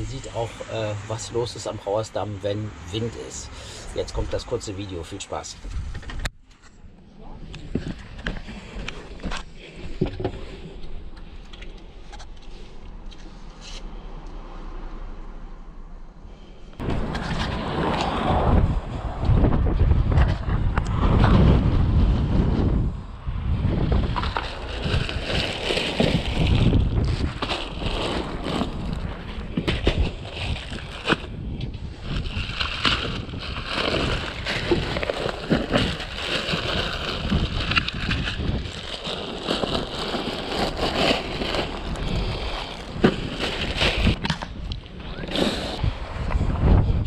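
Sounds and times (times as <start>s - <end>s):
wind buffeting microphone: 5.6s - 6.3s, 16.8s - 47.0s
plastic bags crinkling: 24.4s - 31.2s, 32.0s - 44.2s.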